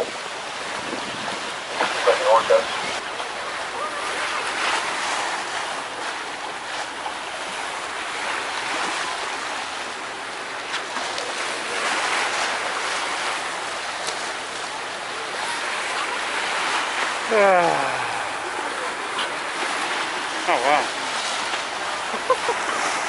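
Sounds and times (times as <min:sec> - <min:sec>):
water splashing beside a boat: 0:00.0 - 0:23.0
wind: 0:00.0 - 0:23.0.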